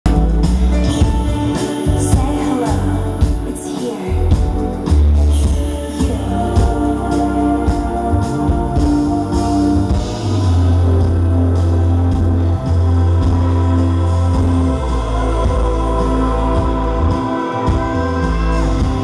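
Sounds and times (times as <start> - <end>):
deep synth bass: 0.0 - 3.5, 4.2 - 19.0
synth chords: 0.1 - 19.0
woman singing into a microphone: 0.7 - 12.2.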